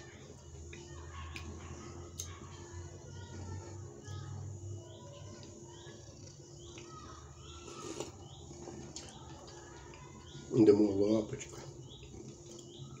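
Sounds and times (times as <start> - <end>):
man eating: 7.5 - 13.0.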